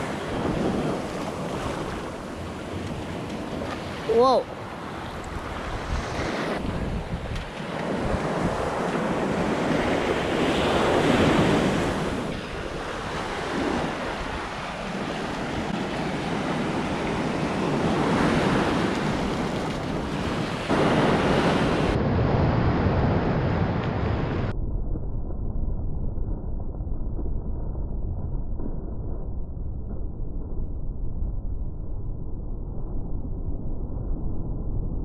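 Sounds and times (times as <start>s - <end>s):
ocean surf on a beach: 0.0s - 24.5s
wind on microphone: 0.0s - 35.0s.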